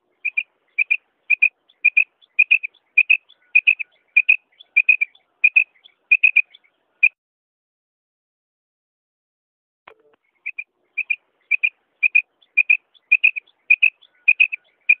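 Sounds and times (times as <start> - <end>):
quail calling: 0.1 - 7.2, 10.4 - 15.0.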